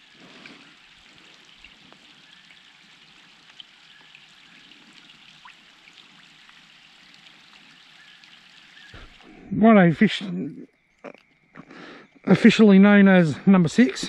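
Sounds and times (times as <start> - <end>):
soft water wash: 0.0 - 9.4
small water drips: 0.0 - 9.5, 10.5 - 12.3.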